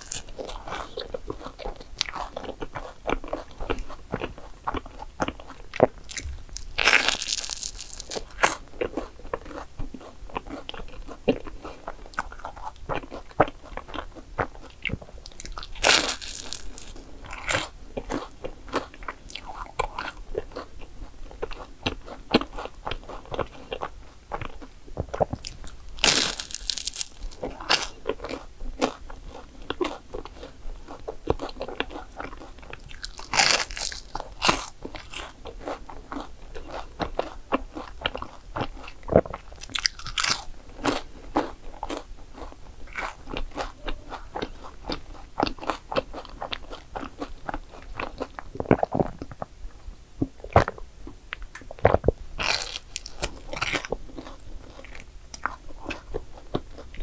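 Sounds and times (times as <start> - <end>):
big crunching bites: 0.0 - 14.7, 15.3 - 20.7, 25.2 - 30.5, 31.3 - 43.7, 51.8 - 56.1
crunchy chewing: 0.0 - 49.5, 50.4 - 57.0.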